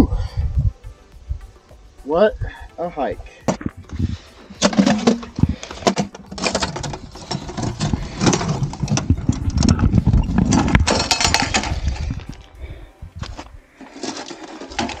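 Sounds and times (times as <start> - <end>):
metal knocking and scraping on stone: 3.5 - 12.1
low rumble: 3.6 - 4.3, 6.9 - 13.7.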